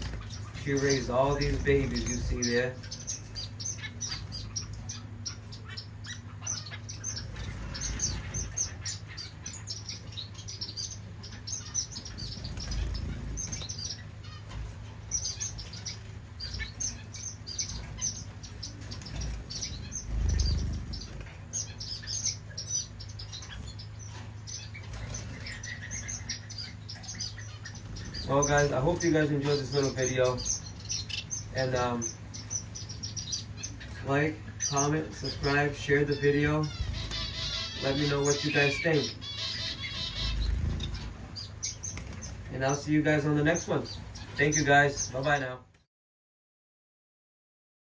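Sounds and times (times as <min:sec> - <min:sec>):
steady low hum: 0:00.0 - 0:45.7
finches chirping: 0:00.0 - 0:45.9
wing flutters: 0:11.5 - 0:29.8, 0:39.8 - 0:42.8.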